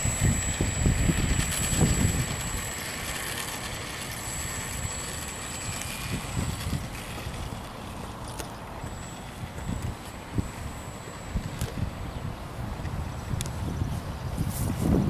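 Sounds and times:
wind rumble on microphone: 0:00.0 - 0:02.6, 0:11.3 - 0:15.0
electric motor and propeller whirring: 0:00.0 - 0:15.0.

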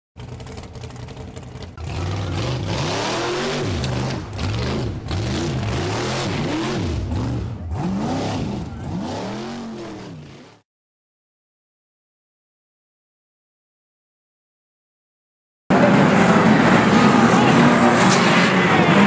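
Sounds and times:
racing car engines revving: 0:00.2 - 0:10.6, 0:15.7 - 0:19.0
track noise: 0:15.7 - 0:19.0.

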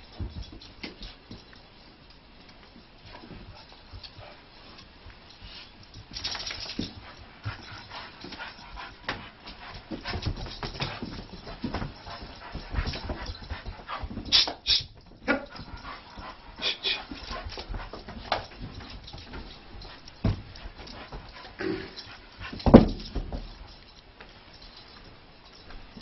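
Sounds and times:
scuffs and clicks of movement: 0:00.0 - 0:26.0.

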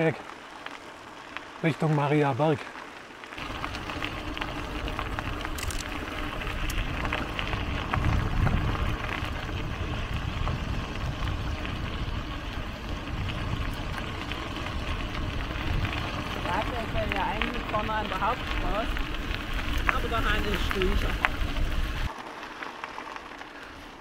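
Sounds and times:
bike tyres rolling: 0:00.0 - 0:24.0
small clicks: 0:05.4 - 0:06.8.

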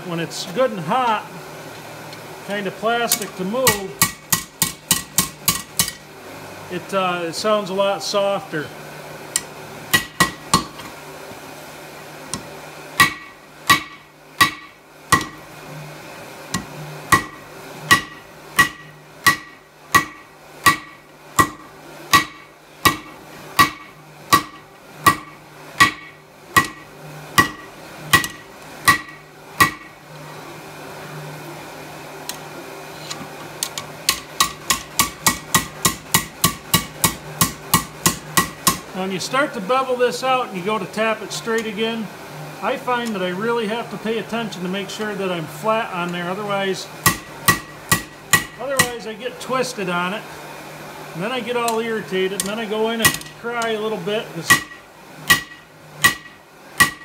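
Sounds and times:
hammer striking hot steel on anvil: 0:03.1 - 0:06.0, 0:09.4 - 0:10.8, 0:12.4 - 0:15.4, 0:16.6 - 0:30.0, 0:34.1 - 0:38.8, 0:47.0 - 0:49.1, 0:53.0 - 0:53.4, 0:54.5 - 0:57.0.

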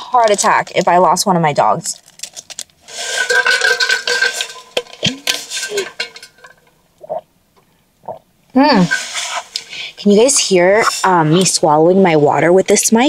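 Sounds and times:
person swallowing: 0:07.0 - 0:08.3.

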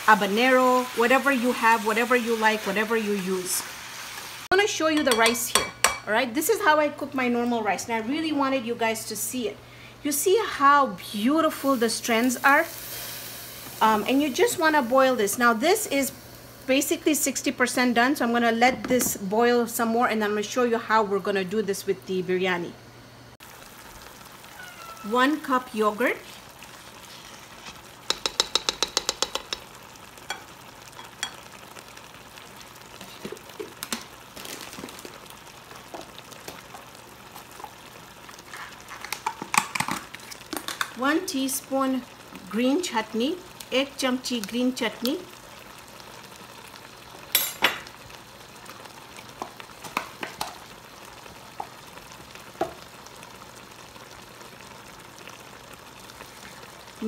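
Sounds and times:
gravy sizzling in a pot: 0:00.0 - 0:22.2, 0:23.3 - 0:57.0
utensil clicking against pot: 0:28.1 - 0:29.7.

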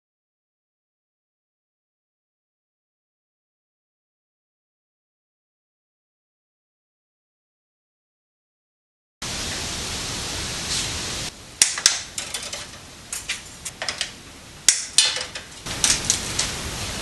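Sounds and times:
steady hiss: 0:09.2 - 0:17.0
hands handling electrical cable: 0:11.6 - 0:16.6.

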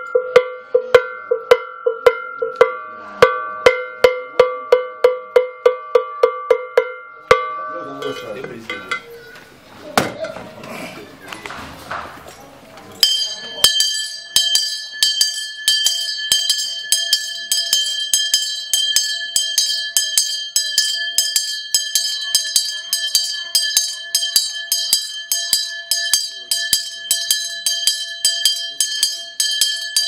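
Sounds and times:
metal bell ringing: 0:00.0 - 0:09.3, 0:13.0 - 0:30.0.

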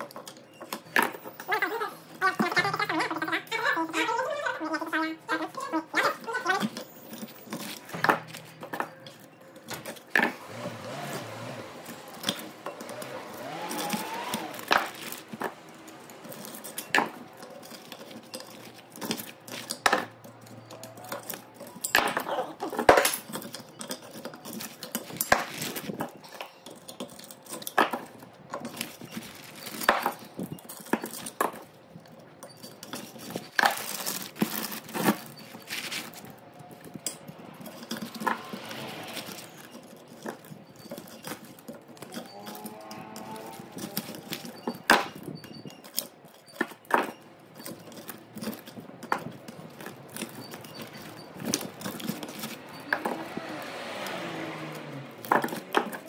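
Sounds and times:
metal tools clinking on motor: 0:00.0 - 0:56.0.

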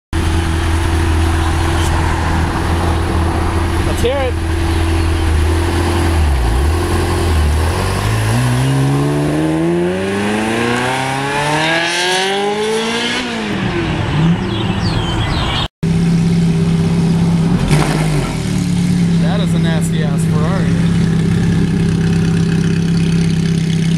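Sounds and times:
sports car engine idling: 0:00.2 - 0:07.8, 0:15.9 - 0:23.9
sports car engine revving: 0:00.2 - 0:23.9.

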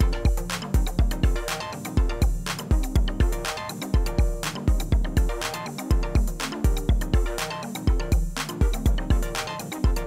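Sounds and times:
electronic music with drum-machine beat: 0:00.0 - 0:10.0.

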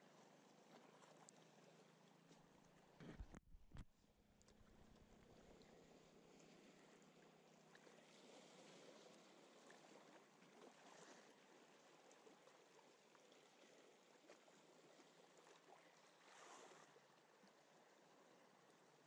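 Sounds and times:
small waves over rocks: 0:04.5 - 0:19.0.

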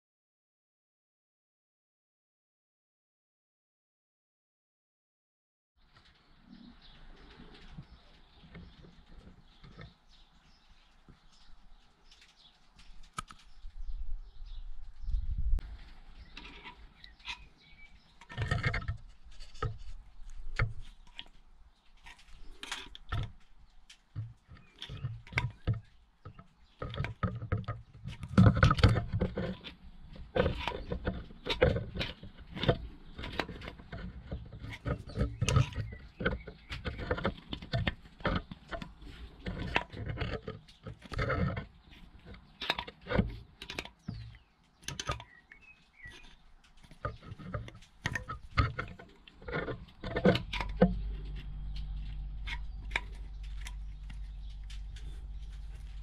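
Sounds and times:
screwdriver scraping metal: 0:16.2 - 0:21.3, 0:26.8 - 0:56.0.

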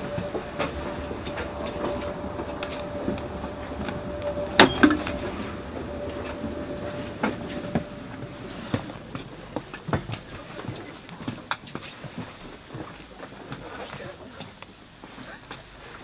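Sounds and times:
train carriage hum: 0:00.0 - 0:11.6.

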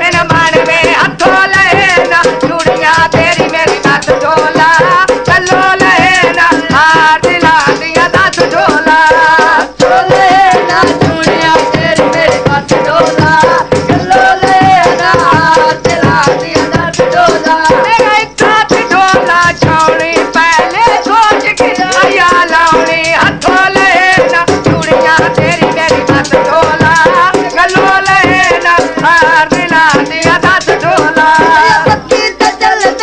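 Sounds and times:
fast jingling percussion: 0:00.0 - 0:33.0.

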